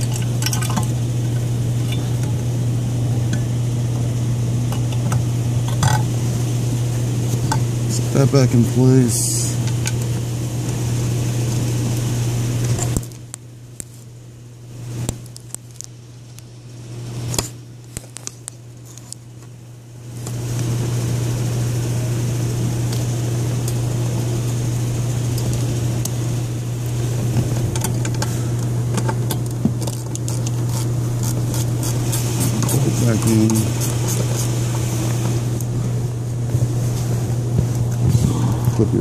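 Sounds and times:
steady low hum: 0.0 - 39.0.

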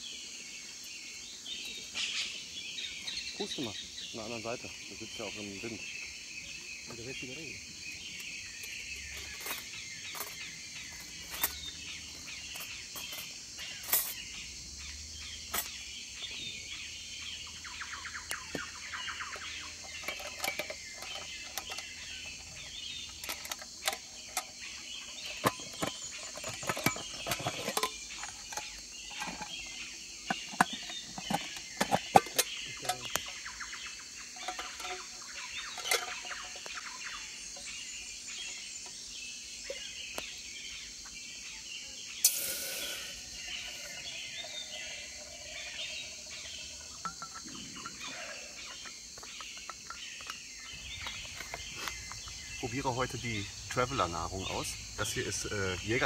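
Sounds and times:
birds and insects chirping: 0.0 - 56.0
metal cooking pot clicks and knocks: 19.3 - 33.4, 34.3 - 36.9, 46.6 - 48.0.

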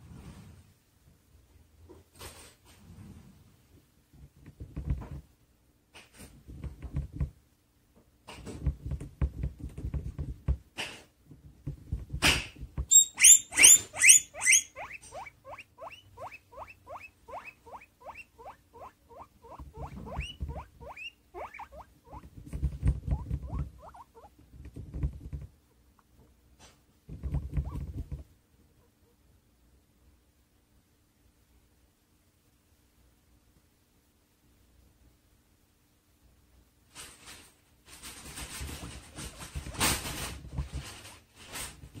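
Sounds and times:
guinea pig munching food: 8.3 - 25.5
guinea pigs squealing: 12.9 - 22.3, 23.0 - 24.4, 27.3 - 28.1.

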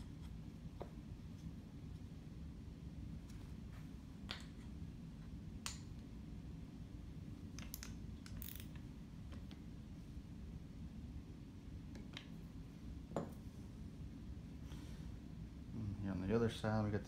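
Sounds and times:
steady low hum: 0.0 - 17.0
small metal parts being handled: 7.6 - 8.8.

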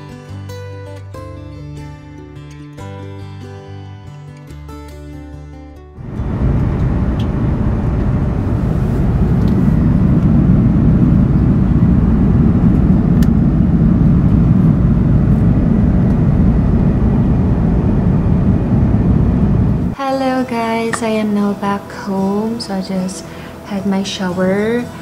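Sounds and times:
airliner cabin rumble: 6.0 - 20.0.

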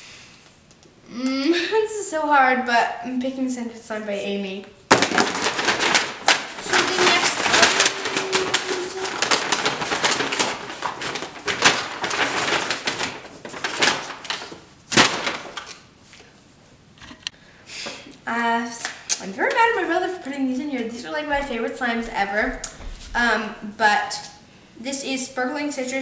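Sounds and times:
paper bag rustling and crinkling: 4.9 - 16.2.

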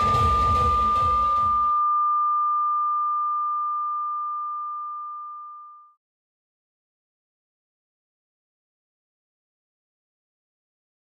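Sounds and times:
loud club music: 0.0 - 1.8
pure steady tone: 0.0 - 6.0.

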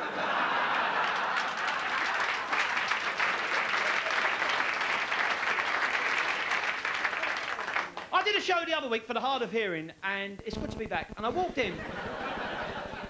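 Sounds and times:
audience clapping: 0.0 - 8.2.

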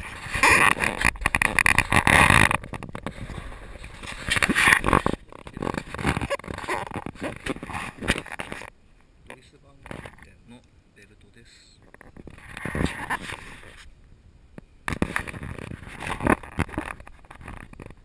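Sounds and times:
camera handling noise: 0.0 - 8.7, 14.9 - 18.0.

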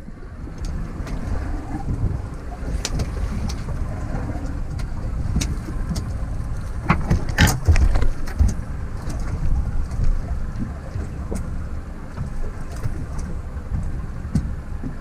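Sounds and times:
boat engine rumble: 0.0 - 15.0
wind buffeting camera: 0.0 - 15.0.

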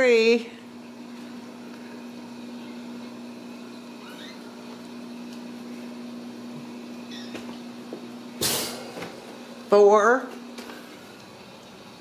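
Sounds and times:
low room hum: 0.0 - 12.0
faint rising squeak: 2.5 - 2.9, 3.9 - 4.6, 7.0 - 7.6.

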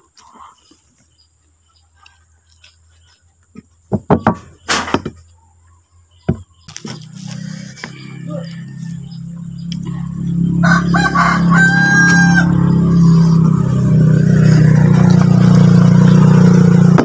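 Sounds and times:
steady engine hum: 0.0 - 17.0
rooster crowing: 7.5 - 13.5.

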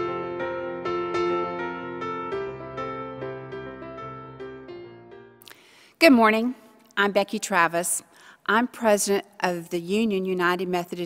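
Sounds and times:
gentle piano melody: 0.0 - 5.5.

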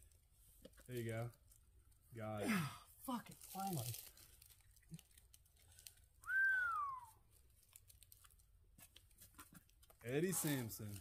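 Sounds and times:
whistled note sliding down: 6.3 - 7.2
faint clicks and rustles: 7.2 - 11.0.

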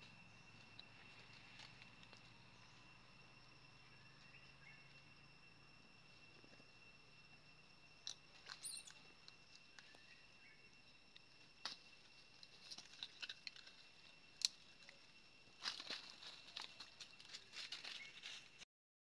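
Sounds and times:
high-pitched insect drone: 0.0 - 18.6.

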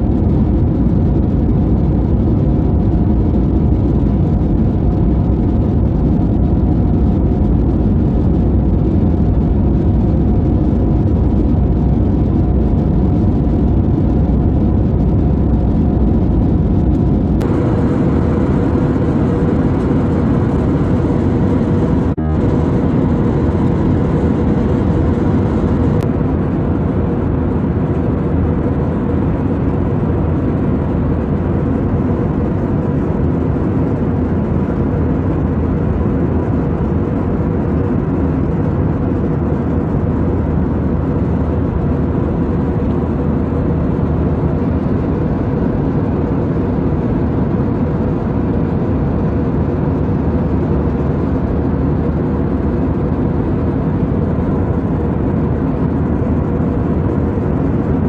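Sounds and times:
faint steady hum: 0.0 - 58.0
jet airliner cabin drone: 0.0 - 58.0.

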